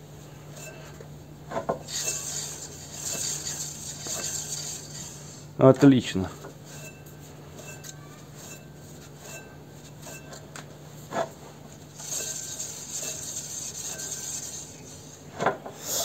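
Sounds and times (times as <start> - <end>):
light rubbing hiss: 1.8 - 5.5, 11.1 - 15.2.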